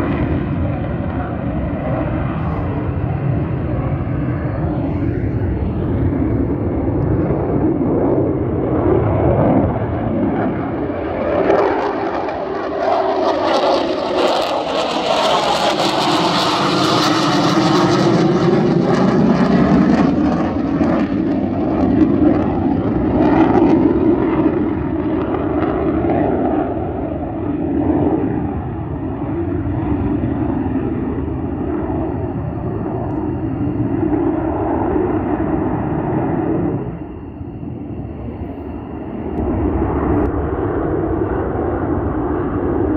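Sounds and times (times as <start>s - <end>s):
jet engines flying past: 0.0s - 42.9s.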